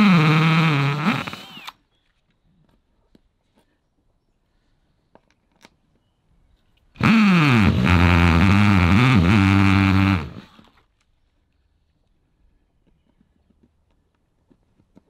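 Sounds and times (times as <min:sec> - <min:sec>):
cordless drill drilling: 0:00.0 - 0:01.8, 0:07.0 - 0:10.7.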